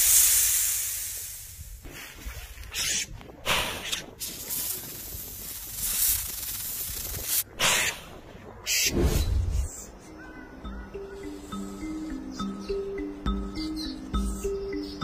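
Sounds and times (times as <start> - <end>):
snake hissing: 0.0 - 1.7, 2.7 - 9.7.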